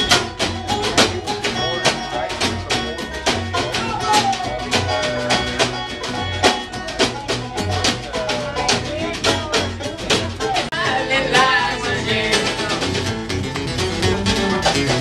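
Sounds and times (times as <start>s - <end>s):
acoustic guitar: 0.0s - 15.0s
banjo: 0.0s - 15.0s
sliding melody line: 0.0s - 15.0s
upright bass: 0.0s - 15.0s.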